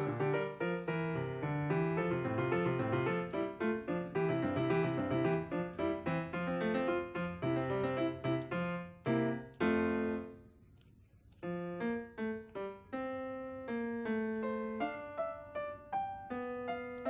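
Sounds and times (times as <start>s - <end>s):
piano notes: 0.0s - 10.4s.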